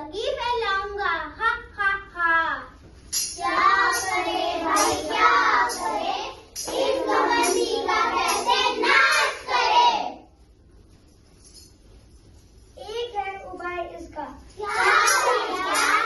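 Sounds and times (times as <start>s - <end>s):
children singing in chorus: 3.4s - 10.2s, 14.6s - 16.0s.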